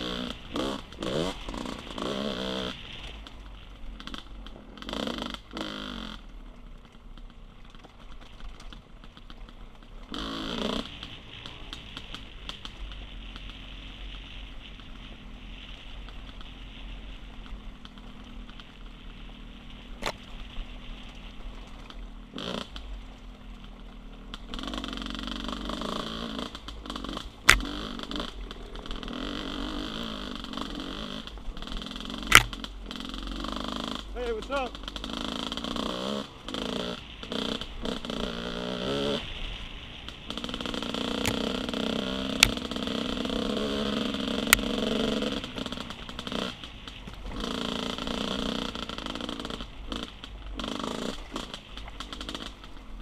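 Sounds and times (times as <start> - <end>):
dirt bike engine revving: 0.0 - 3.1, 4.0 - 6.3, 10.0 - 14.1, 22.2 - 23.0, 24.2 - 53.0.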